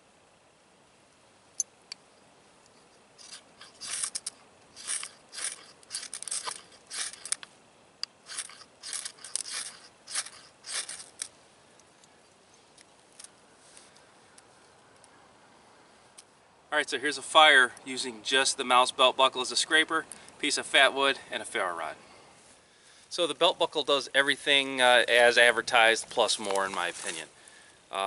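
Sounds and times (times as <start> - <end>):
ferro rod scraped with steel: 2.7 - 7.4, 8.2 - 11.3.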